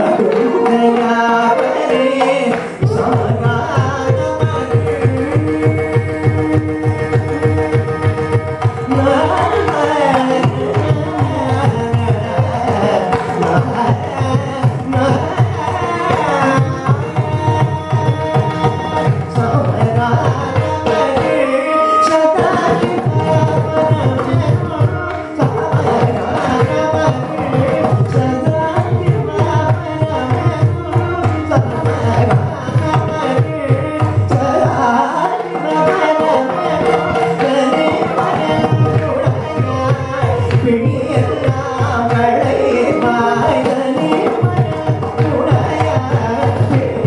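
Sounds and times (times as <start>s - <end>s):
man singing: 0.0s - 47.0s
violin accompaniment: 0.0s - 47.0s.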